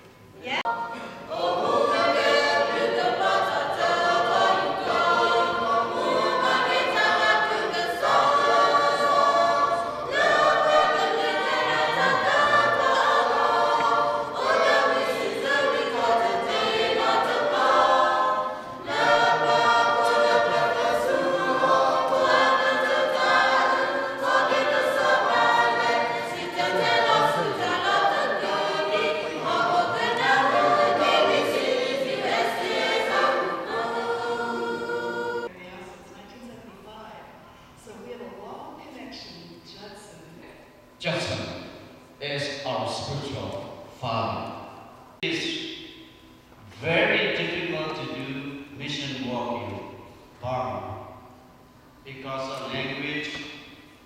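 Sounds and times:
mixed choir singing: 0.6s - 35.5s.

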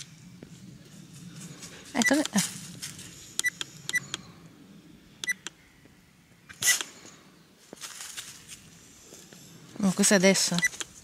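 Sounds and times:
electronic beep with click: 5.2s - 5.6s.

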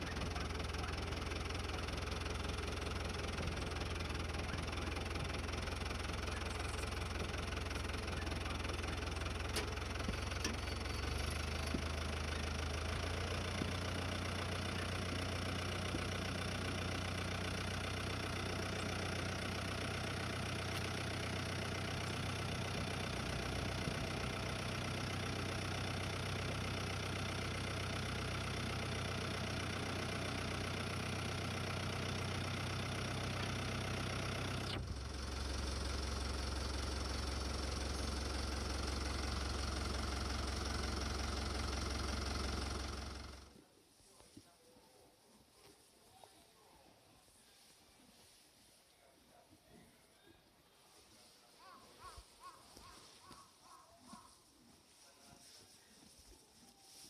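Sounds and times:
tractor engine running: 0.0s - 43.7s.

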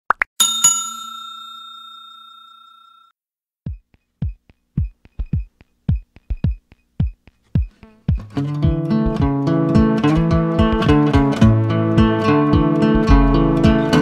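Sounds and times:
notification bell chime: 0.4s - 3.1s
drum-machine kick beat: 3.6s - 14.0s
background music: 6.1s - 14.0s.

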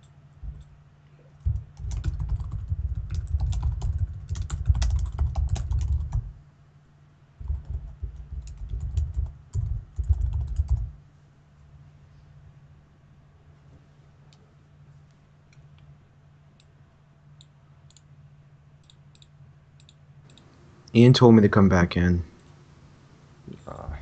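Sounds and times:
dull low thud: 1.4s - 1.8s
typing on computer keyboard: 1.4s - 6.3s, 7.4s - 11.0s.

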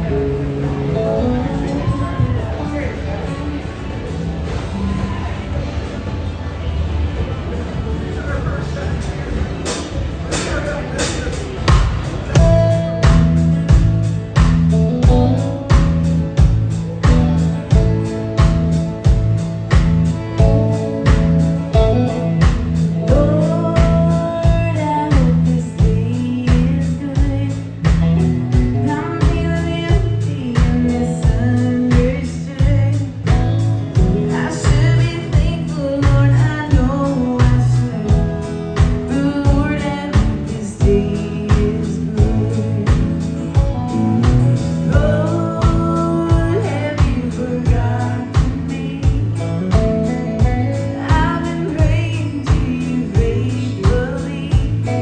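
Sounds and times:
acoustic guitar: 0.0s - 55.0s
electric bass: 0.0s - 55.0s
drum kit steady beat: 8.9s - 55.0s
woman singing: 22.1s - 55.0s.

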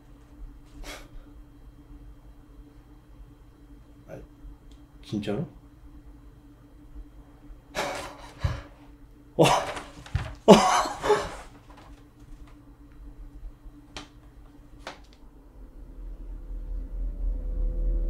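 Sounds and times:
man laughing breathily: 9.4s - 11.6s
man gasping: 10.4s - 11.6s.

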